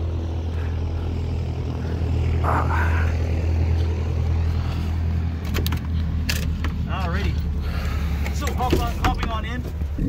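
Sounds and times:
light aircraft piston engine: 0:00.0 - 0:10.0.

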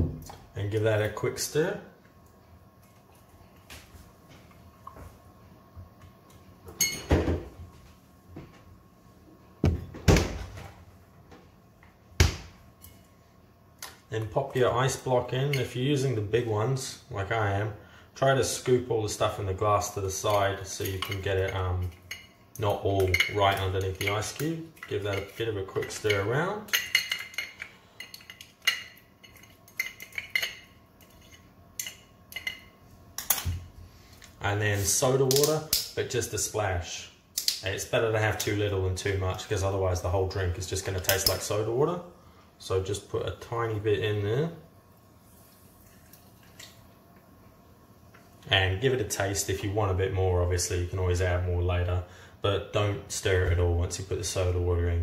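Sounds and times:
fridge doors thudding: 0:09.6 - 0:10.6.

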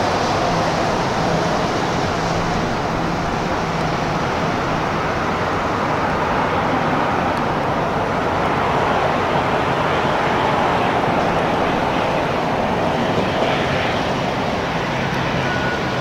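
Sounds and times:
turboprop airliner landing roar: 0:00.0 - 0:16.0.

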